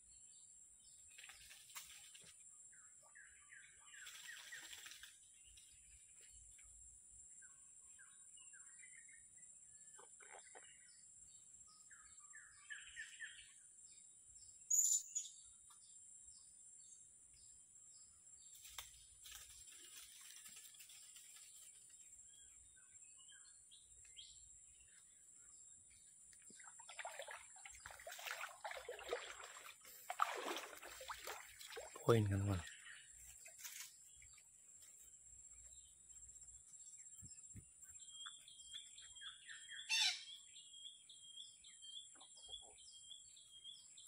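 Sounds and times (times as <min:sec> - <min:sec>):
rustling and splashing: 0:01.1 - 0:02.4, 0:18.6 - 0:22.0, 0:26.2 - 0:32.4, 0:33.2 - 0:34.4.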